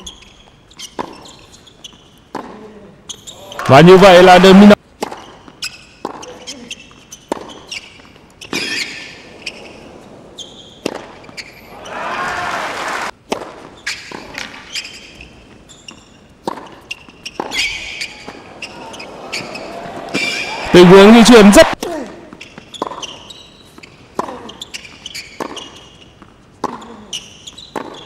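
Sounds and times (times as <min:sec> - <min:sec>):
tennis ball bouncing: 0:00.7 - 0:02.7, 0:04.9 - 0:11.7, 0:13.2 - 0:14.6, 0:15.4 - 0:20.5, 0:22.4 - 0:28.0
tennis racquet striking ball: 0:02.3 - 0:02.6, 0:05.0 - 0:06.4, 0:07.2 - 0:09.2, 0:10.7 - 0:11.6, 0:13.2 - 0:14.6, 0:16.4 - 0:18.7, 0:19.3 - 0:20.5, 0:25.3 - 0:28.0
crowd applause and cheering: 0:11.7 - 0:13.1, 0:18.4 - 0:21.8.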